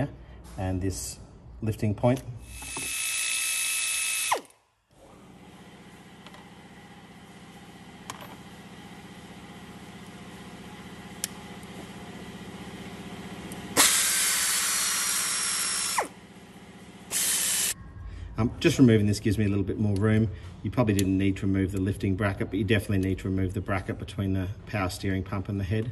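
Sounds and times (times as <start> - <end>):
air ratchet hissing: 2.4 - 4.5, 13.8 - 16.1, 17.1 - 17.8.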